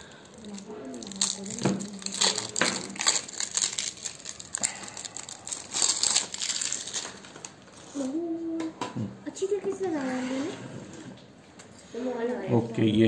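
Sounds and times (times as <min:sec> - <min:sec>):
plastic wrap crinkling and tearing: 0:00.0 - 0:08.3.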